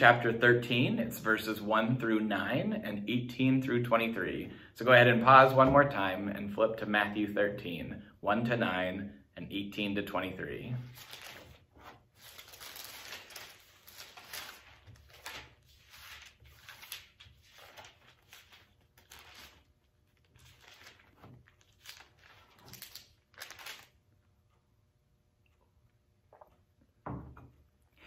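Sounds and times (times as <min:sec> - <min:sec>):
book pages flipping: 0:10.9 - 0:24.0.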